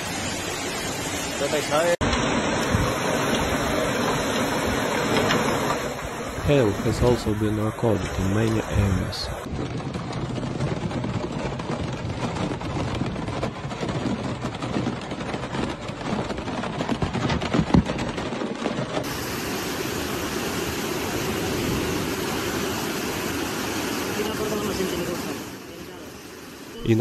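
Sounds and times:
rushing floodwater: 0.0 - 9.5, 19.0 - 27.0
crackling knocks: 2.0 - 19.2.

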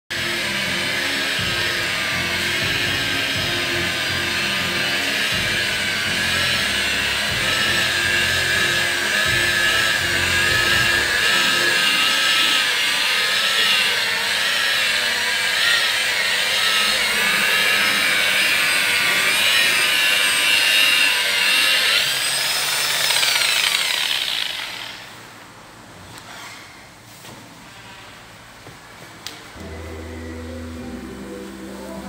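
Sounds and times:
electric car polisher whining: 0.1 - 25.3.

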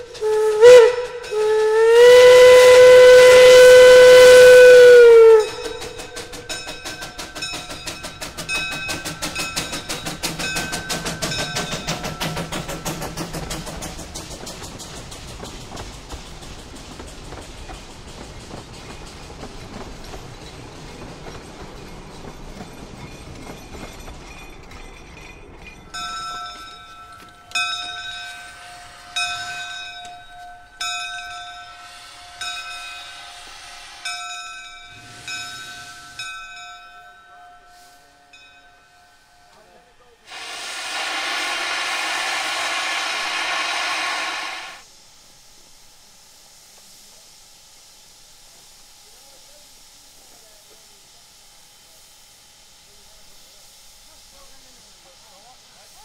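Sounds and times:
steam locomotive bell ringing: 0.0 - 15.2, 17.8 - 44.8
train wheels rumbling on rails: 0.0 - 56.0.

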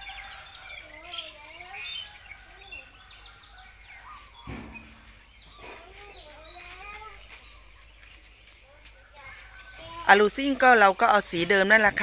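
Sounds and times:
birds chirping: 0.0 - 12.0
single knock: 4.5 - 5.1.

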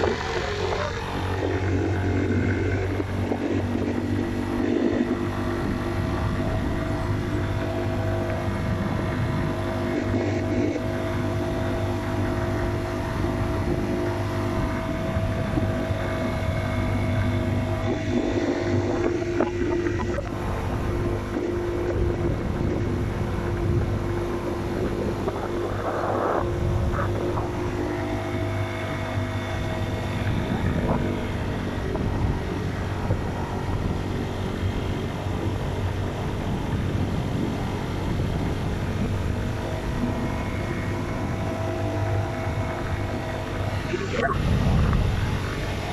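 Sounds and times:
motocross bike engine running: 0.0 - 45.9
wind buffeting microphone: 0.0 - 45.9.

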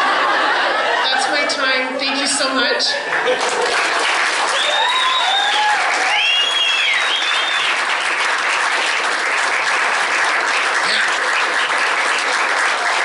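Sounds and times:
audience applauding: 0.0 - 13.0
cheering whoops: 4.4 - 7.9.

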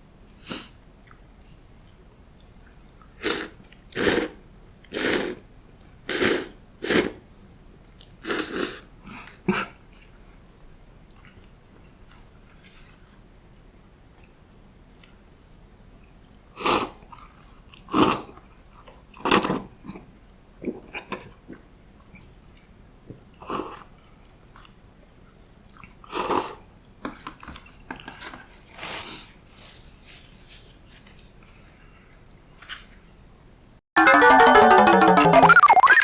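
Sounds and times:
chewing and mouth noises: 1.0 - 4.2, 11.0 - 13.2, 23.3 - 26.5
person slurping noodles: 3.2 - 5.4, 6.1 - 7.2, 8.2 - 8.9, 16.6 - 17.0.

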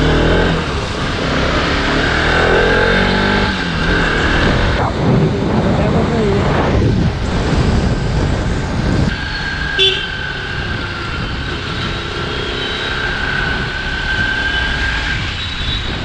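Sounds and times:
motorcycle engine: 0.0 - 16.0
wind rush: 0.2 - 9.5, 10.2 - 16.0
vehicle horn toot: 9.8 - 10.3.

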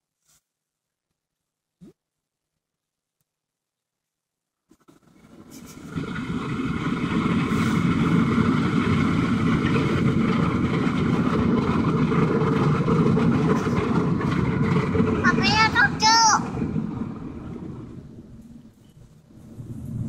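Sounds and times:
car wash rushing noise: 4.7 - 20.0.

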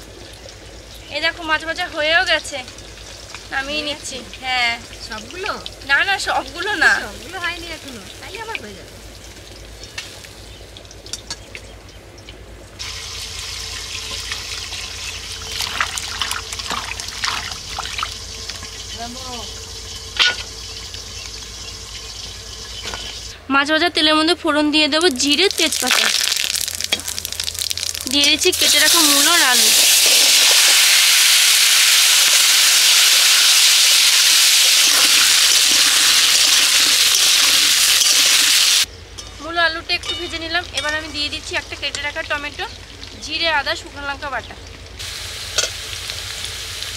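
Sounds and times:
vegetables sizzling in oil: 0.0 - 11.4, 12.8 - 23.8, 25.0 - 38.9, 40.4 - 46.9
water pouring into a steel bowl: 12.8 - 19.9, 25.4 - 38.4.

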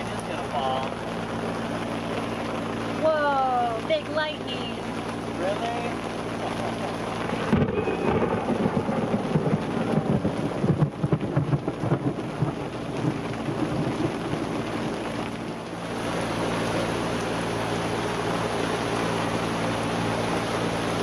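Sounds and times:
low thumps and rumbles: 0.0 - 16.0
rain hissing on boat and sea: 0.0 - 21.0.

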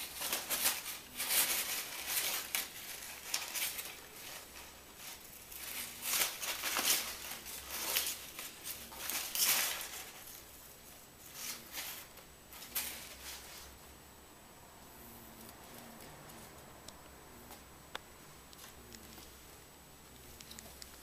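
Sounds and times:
paper rustling and crinkling: 0.0 - 10.6, 11.2 - 13.8.

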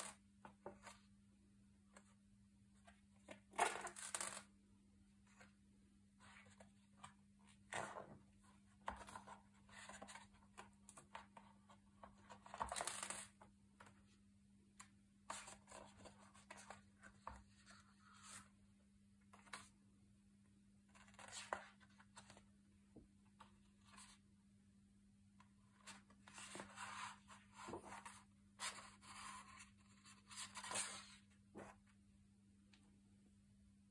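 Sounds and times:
page turning: 25.8 - 31.8
paper pages rustling: 25.8 - 31.9.

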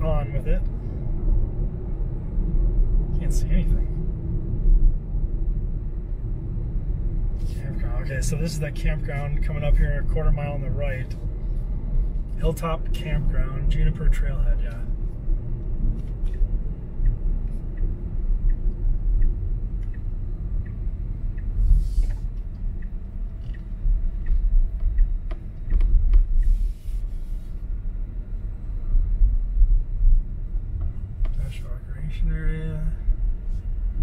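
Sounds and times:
road and tyre rumble: 0.0 - 34.0
turn signal ticking: 14.0 - 26.8.

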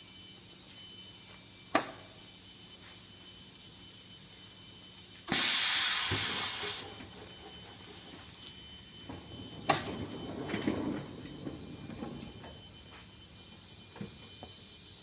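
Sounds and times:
compressed air hiss: 5.3 - 6.9.

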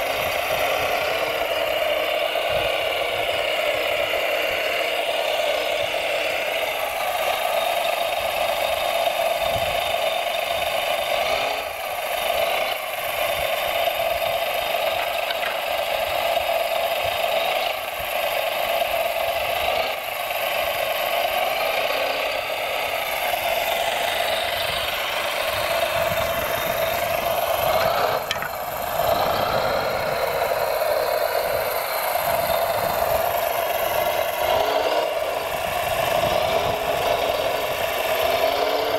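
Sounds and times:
toy truck electric motors whining: 0.0 - 38.9
light rattle: 14.8 - 15.9.

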